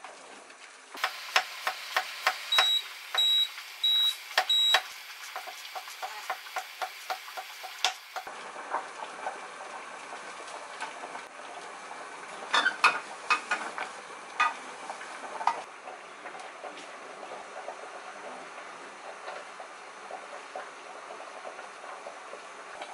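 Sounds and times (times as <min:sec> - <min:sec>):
pot boiling: 0:00.0 - 0:22.9
gas stove hissing: 0:00.9 - 0:08.4.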